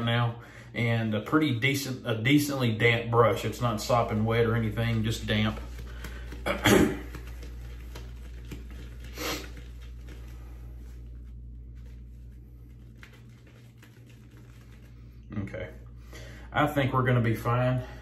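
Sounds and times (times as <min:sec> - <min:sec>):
shaving brush swirling on soap: 0:03.3 - 0:15.2.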